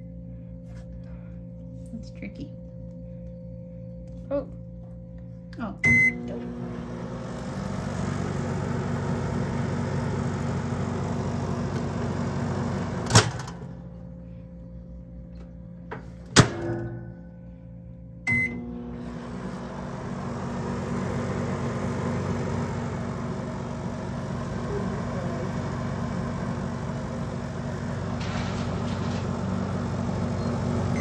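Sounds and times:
microwave oven humming: 0.0s - 31.0s
microwave beep: 5.7s - 13.8s, 18.2s - 31.0s.

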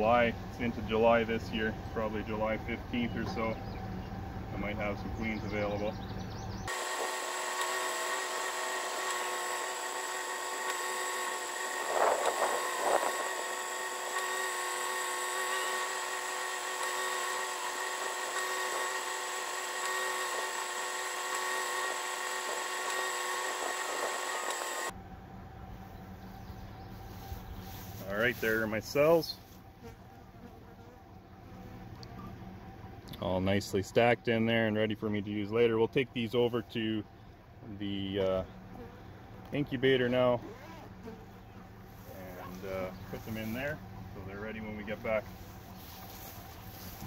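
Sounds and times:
drill-like whine: 6.7s - 25.0s.

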